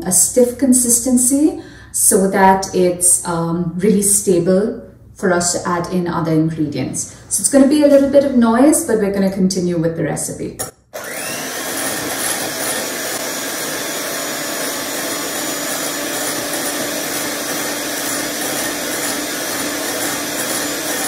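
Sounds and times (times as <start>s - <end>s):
electric hand mixer running: 11.0s - 21.0s.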